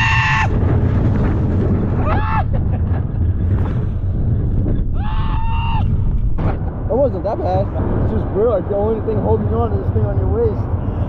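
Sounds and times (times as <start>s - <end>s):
held high cry: 0.0s - 0.5s, 4.9s - 5.9s
wind rumble on microphone: 0.0s - 11.0s.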